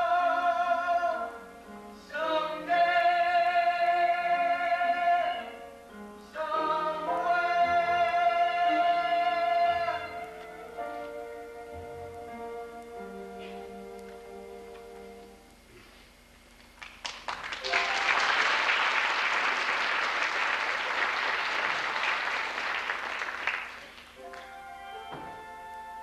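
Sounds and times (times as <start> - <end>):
music: 0.0 - 16.2, 17.6 - 18.6, 23.7 - 26.0
audience applause: 16.8 - 24.5.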